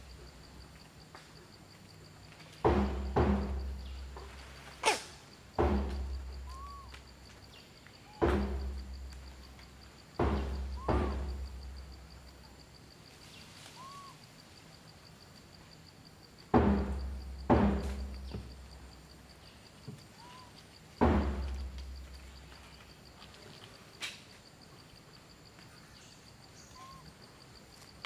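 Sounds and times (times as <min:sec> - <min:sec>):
thumps with low boom: 0:02.7 - 0:04.1, 0:05.6 - 0:06.6, 0:08.2 - 0:09.0, 0:10.2 - 0:11.8, 0:16.6 - 0:18.6, 0:21.0 - 0:22.0
squeaky calls: 0:06.4 - 0:07.0, 0:20.2 - 0:20.6, 0:26.6 - 0:27.1.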